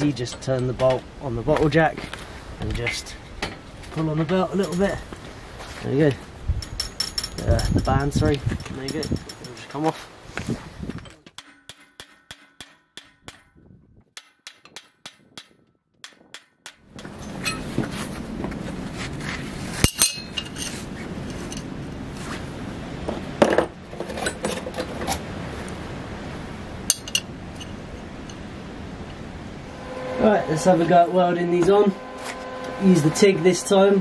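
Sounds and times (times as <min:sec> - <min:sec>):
metallic clinks and knocks: 0:06.6 - 0:09.8, 0:16.0 - 0:17.8, 0:19.8 - 0:21.7, 0:26.9 - 0:28.4
steady background rush: 0:26.0 - 0:34.0.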